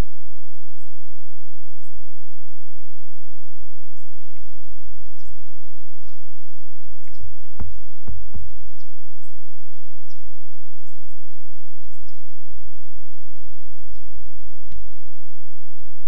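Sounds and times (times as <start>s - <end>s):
steady low rumble: 0.0s - 16.0s
small birds chipping: 3.7s - 15.2s.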